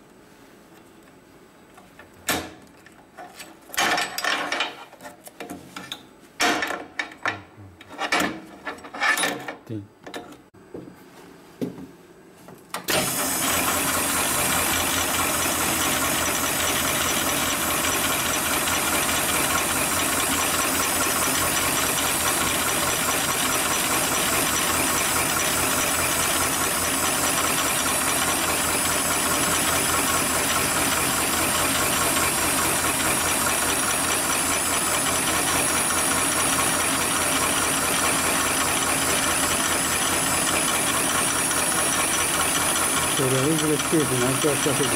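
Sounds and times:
sewing machine needle strokes: 37.2s - 44.9s.

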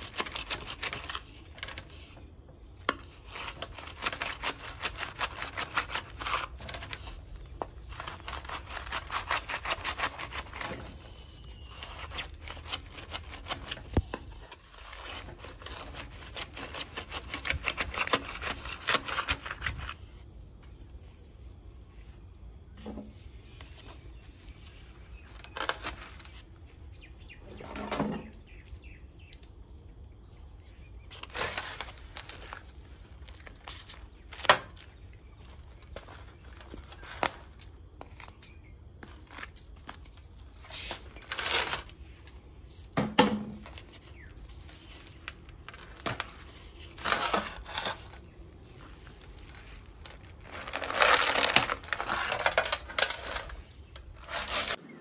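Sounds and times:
rustling: 30.2s - 54.8s
crumbling soil: 43.5s - 54.9s
knife scraping plastic pot: 50.6s - 54.8s.

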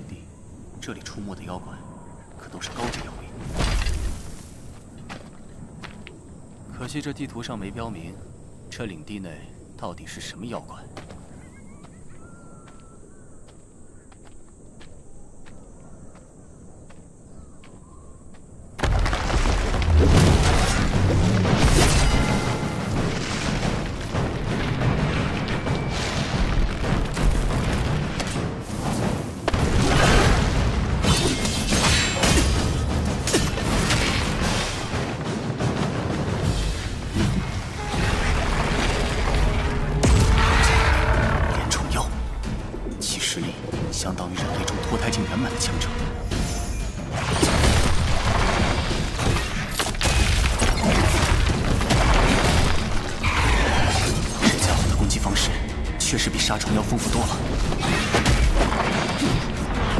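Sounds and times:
booming impacts and explosions: 18.8s - 59.9s
dramatic orchestral score: 27.6s - 49.4s, 51.9s - 59.9s.

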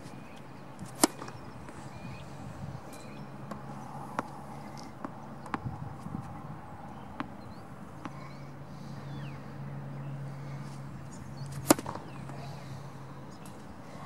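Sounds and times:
tennis ball bouncing on court: 0.8s - 1.8s, 2.9s - 8.3s, 11.5s - 12.2s
tennis racket hitting ball: 0.8s - 1.8s, 7.2s - 7.4s, 11.5s - 12.2s.

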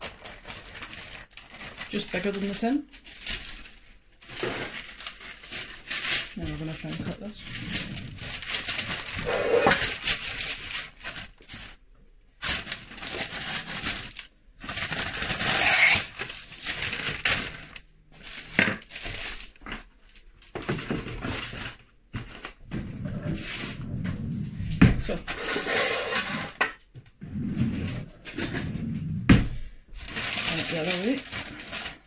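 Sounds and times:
baking paper rustling and crinkling: 0.0s - 26.9s, 27.5s - 32.0s
knife cutting paper: 9.1s - 10.0s, 15.1s - 16.2s.

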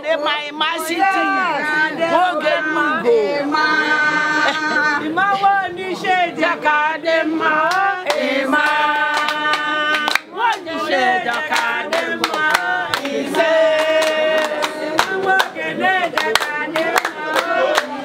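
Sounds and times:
women singing together: 0.0s - 18.0s
hand clapping: 7.7s - 10.7s, 11.3s - 18.0s.

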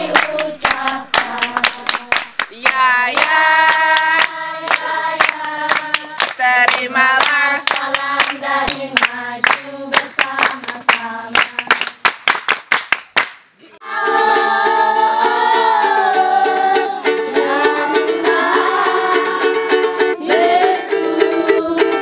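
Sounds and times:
children singing: 0.0s - 11.7s, 13.8s - 22.0s
hands clapping in rhythm: 0.0s - 13.5s.

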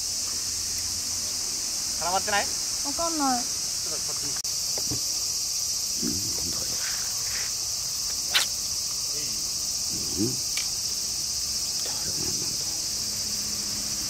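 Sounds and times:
high-pitched insect chorus: 0.0s - 14.0s
sharp click: 8.1s - 8.6s.

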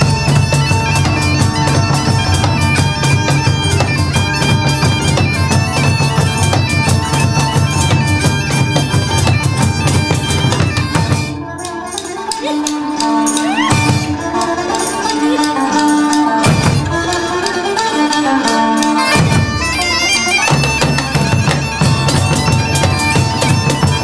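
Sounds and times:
bagpipe melody with drone: 0.0s - 24.0s
fast regular drumming: 0.0s - 24.0s.

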